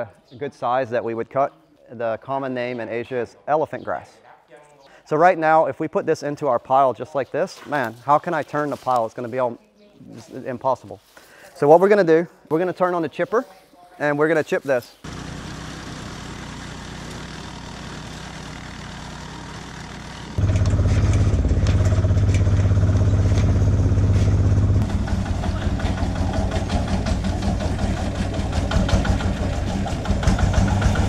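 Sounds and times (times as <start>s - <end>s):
chipper engine running: 15.1s - 31.0s
farm truck engine: 15.1s - 31.0s
truck engine clattering: 15.1s - 31.0s.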